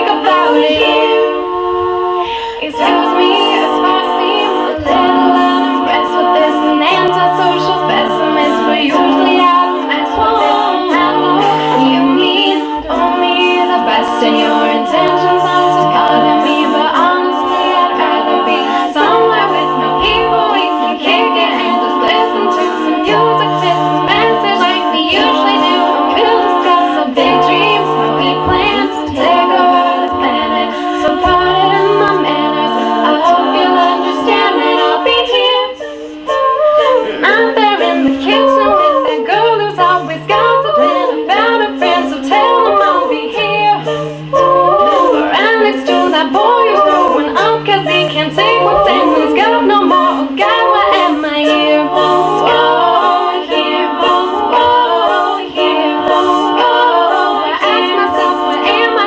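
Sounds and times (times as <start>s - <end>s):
backing voices holding chords: 0.0s - 59.0s
woman singing solo: 2.2s - 59.0s.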